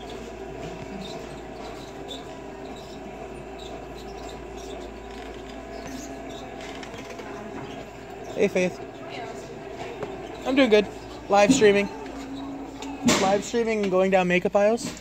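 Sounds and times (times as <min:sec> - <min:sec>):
shopping cart rolling: 0:00.0 - 0:15.0
steady background hum: 0:00.0 - 0:15.0.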